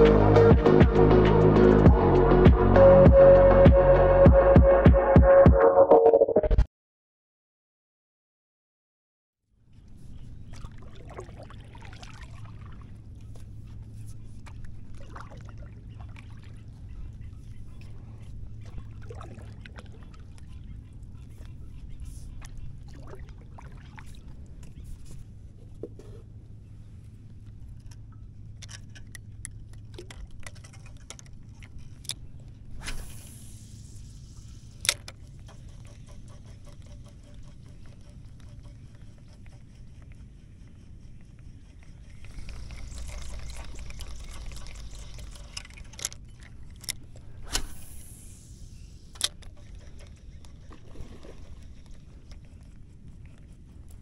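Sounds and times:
low steady hum: 0:09.6 - 0:54.0
paddle pulling through water: 0:09.8 - 0:54.0
fishing gear clicks and taps: 0:27.4 - 0:32.6, 0:34.8 - 0:37.2, 0:49.1 - 0:54.0.

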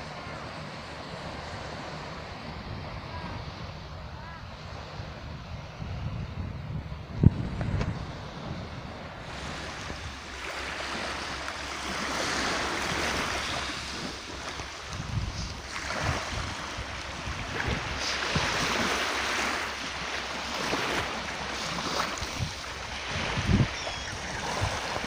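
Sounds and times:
small waves washing onto beach: 0:00.0 - 0:06.4, 0:07.3 - 0:25.0
wind buffeting microphone: 0:01.2 - 0:25.0.

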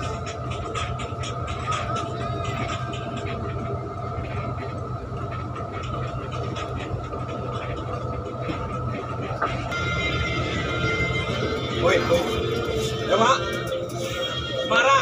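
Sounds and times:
bus engine drone: 0:00.0 - 0:15.0
thin steady whine: 0:00.0 - 0:15.0.

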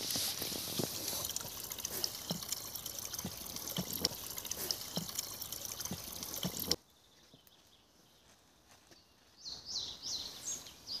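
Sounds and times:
water trickling and splashing: 0:00.0 - 0:06.8.

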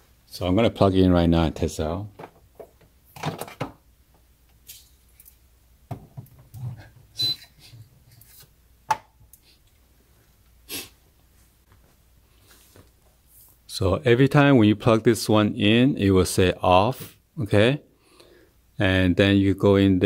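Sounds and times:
short high beep: 0:07.2 - 0:07.5.

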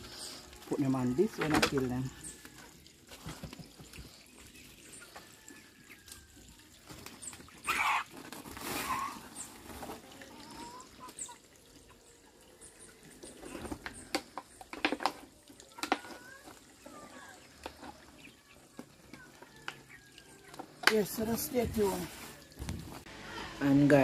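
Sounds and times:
chickens calling faintly: 0:00.1 - 0:14.6
chicken squawk: 0:07.6 - 0:08.2.

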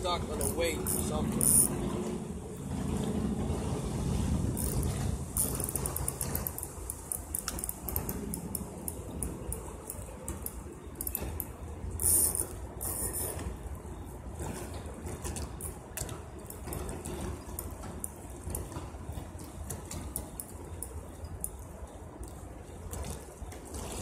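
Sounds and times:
fishing reel ratchet clicking: 0:00.4 - 0:01.7, 0:04.6 - 0:09.0, 0:12.0 - 0:13.2.

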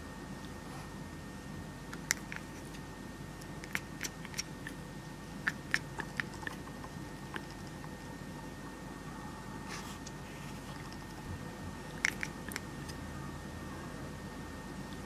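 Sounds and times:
cat chattering: 0:03.4 - 0:04.8, 0:05.4 - 0:08.0, 0:11.9 - 0:12.9.

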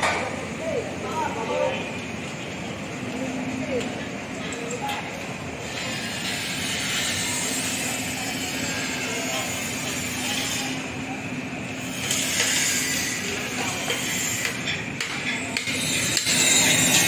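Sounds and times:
machinery hum and hiss: 0:00.0 - 0:17.0.

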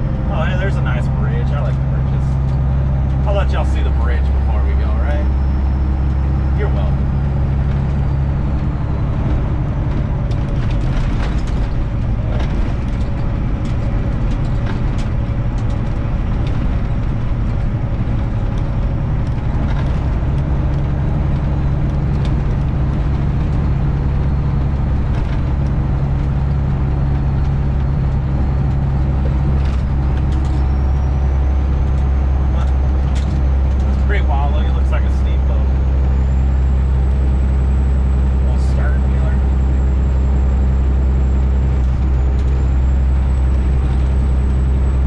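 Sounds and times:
diesel engine drone in cab: 0:00.0 - 0:45.0.

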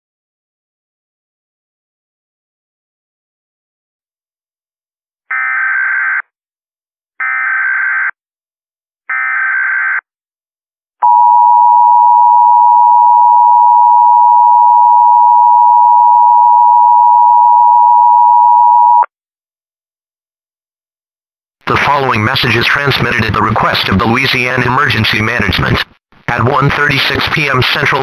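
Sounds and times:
steady two-tone beep: 0:11.0 - 0:19.1.

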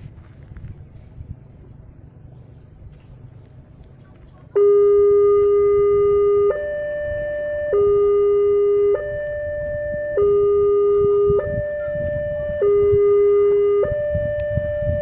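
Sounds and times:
level crossing two-tone alarm: 0:04.6 - 0:15.0.

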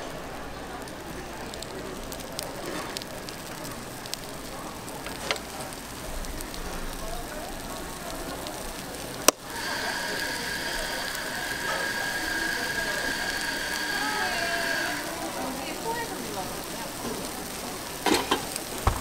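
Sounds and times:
steady high whine: 0:09.2 - 0:17.0.

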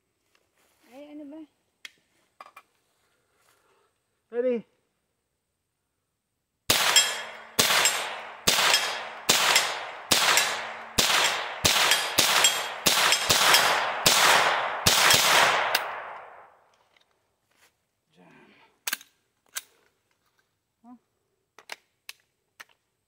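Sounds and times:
gunshots with echo: 0:06.7 - 0:16.6.

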